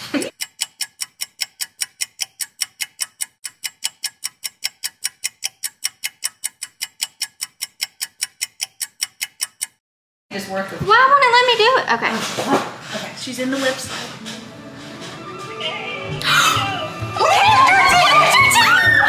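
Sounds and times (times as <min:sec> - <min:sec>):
rapid clock ticking: 0:00.2 - 0:09.8.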